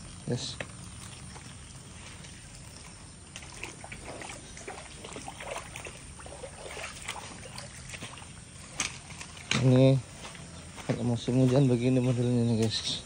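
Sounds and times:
footsteps in muddy water: 0.8s - 13.0s.

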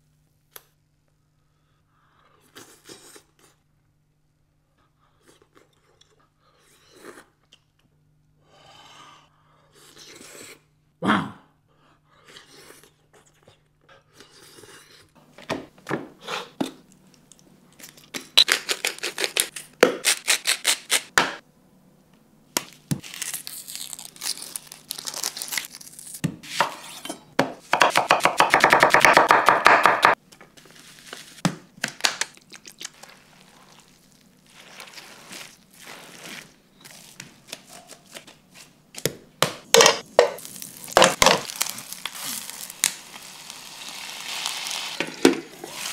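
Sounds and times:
hands squishing minced meat: 32.4s - 38.3s.

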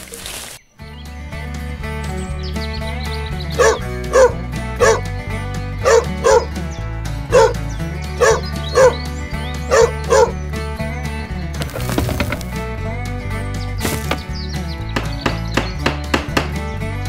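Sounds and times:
background music: 0.8s - 17.0s
dog barking in sharp yelps: 3.6s - 5.1s, 5.8s - 6.5s, 7.3s - 7.6s, 8.2s - 9.0s, 9.7s - 10.4s.

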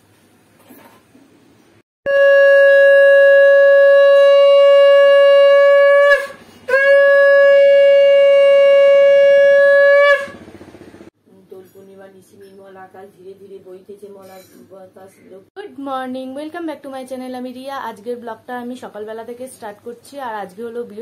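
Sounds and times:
conch shell blasts: 2.1s - 10.6s.

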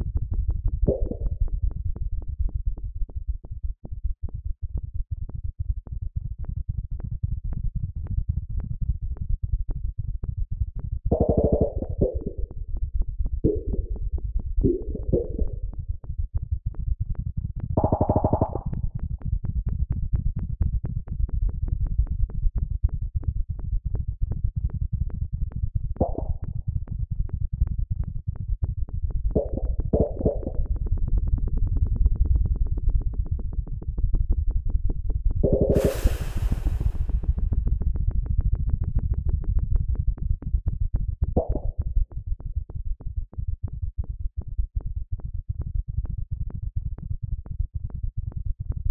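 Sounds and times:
low electronic pulses: 11.1s - 12.6s, 14.6s - 15.6s, 17.8s - 18.8s, 29.4s - 30.7s, 35.4s - 37.7s
high synth swells: 35.7s - 37.4s.

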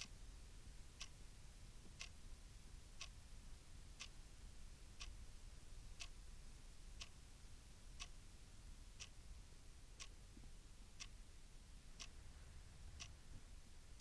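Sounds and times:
clock ticking: 1.0s - 1.2s, 1.9s - 2.2s, 4.0s - 4.2s, 5.0s - 5.2s, 6.0s - 6.2s, 7.0s - 7.2s, 11.0s - 11.2s, 12.0s - 12.2s, 13.0s - 13.3s.

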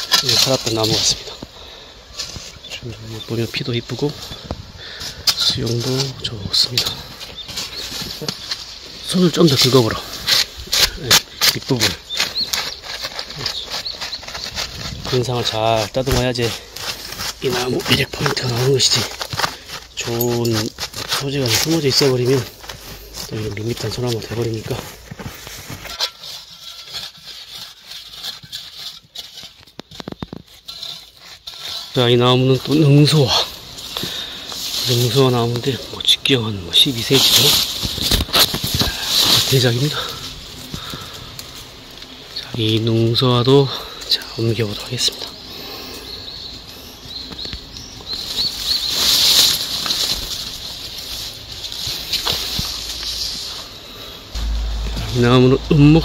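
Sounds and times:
hand scraping soil: 0.0s - 43.7s, 47.9s - 56.0s
leaves and undergrowth rustling: 0.0s - 56.0s
steps on pine needles: 3.9s - 26.8s, 48.1s - 56.0s.

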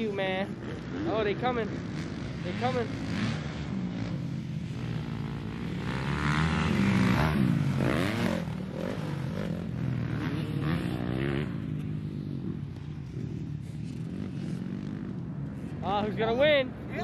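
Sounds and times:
dirt bike engines revving: 0.0s - 17.0s.

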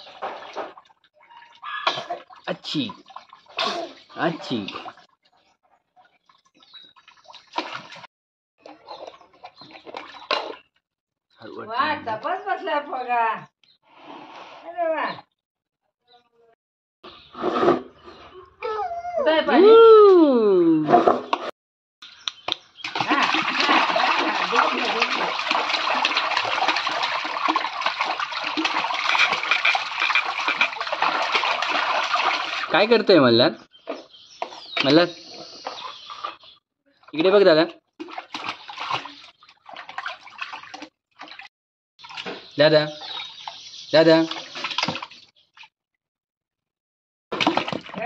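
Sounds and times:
water splashing in a tub: 0.0s - 10.8s, 22.4s - 33.3s, 33.9s - 45.8s, 47.3s - 48.0s
toddler splashing bathwater: 1.4s - 5.1s, 22.9s - 32.7s, 38.0s - 41.4s.

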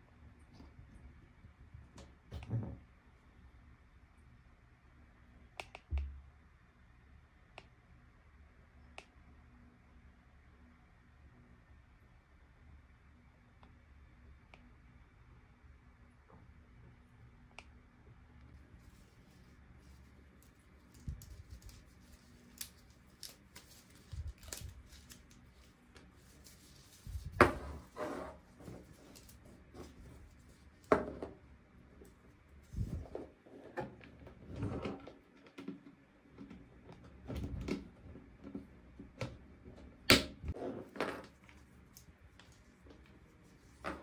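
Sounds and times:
packaging being handled: 18.8s - 27.4s.

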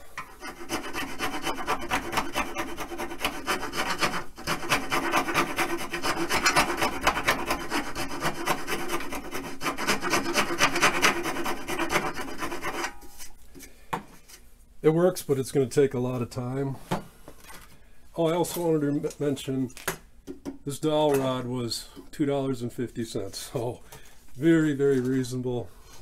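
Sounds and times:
file rasping on wood: 0.1s - 13.2s.

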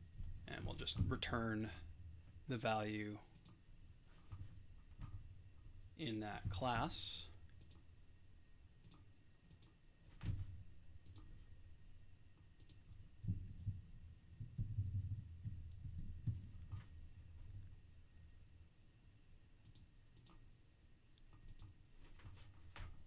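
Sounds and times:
keyboard and mouse clicks: 3.3s - 3.6s, 7.5s - 7.9s, 8.8s - 9.8s, 11.0s - 11.4s, 12.5s - 13.8s, 19.6s - 20.5s, 21.2s - 21.8s.

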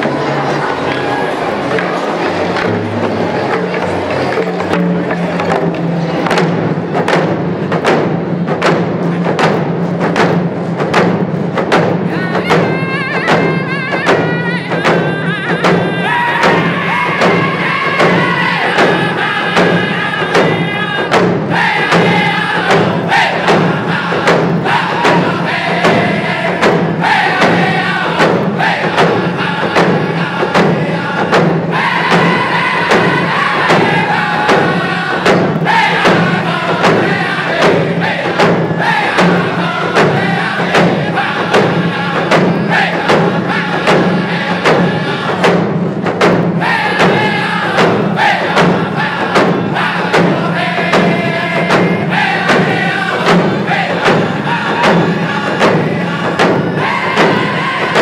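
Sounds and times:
hand drums beating: 1.8s - 58.0s
men singing in unison: 12.0s - 45.7s, 46.6s - 58.0s.

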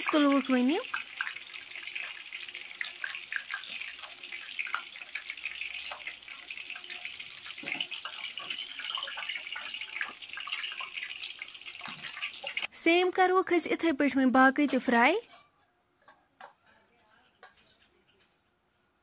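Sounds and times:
food deep-frying in oil: 0.0s - 13.3s.

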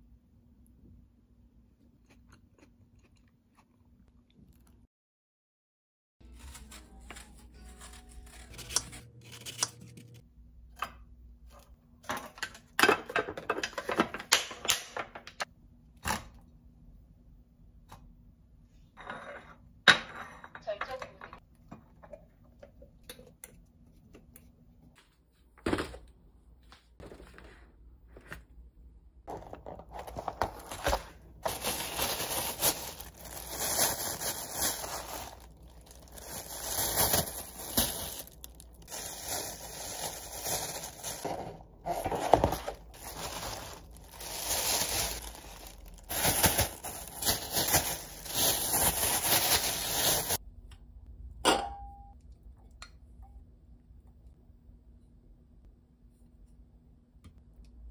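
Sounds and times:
plastic bags crinkling: 29.3s - 50.4s.

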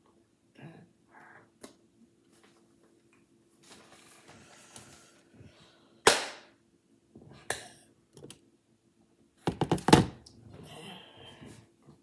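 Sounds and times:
rustling of hands and clothing: 2.2s - 5.4s
sharp hand clap: 6.1s - 6.5s.

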